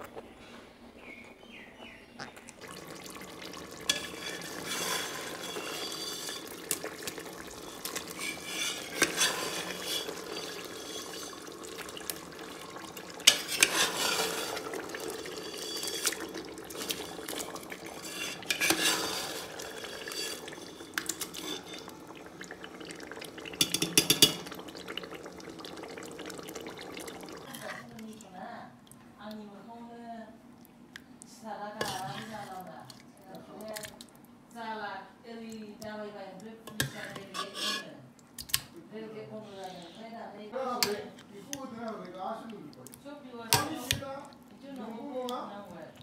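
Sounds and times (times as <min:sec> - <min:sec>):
metal ladle scraping a pot: 0:03.0 - 0:22.7, 0:23.5 - 0:24.9, 0:31.8 - 0:32.5, 0:36.7 - 0:38.0
ladle clinking on pot: 0:03.8 - 0:06.6, 0:07.6 - 0:11.7, 0:13.2 - 0:21.9, 0:23.6 - 0:24.6.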